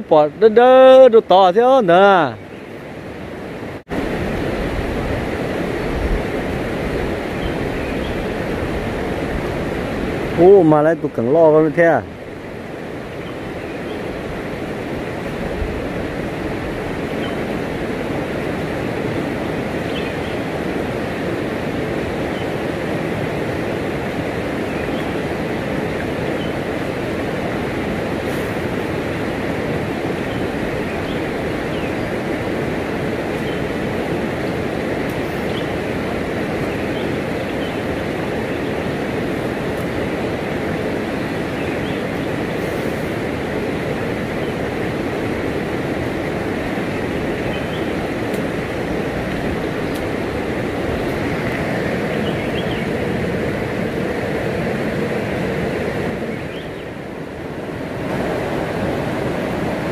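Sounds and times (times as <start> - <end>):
flowing water rushing: 0.0 - 59.9.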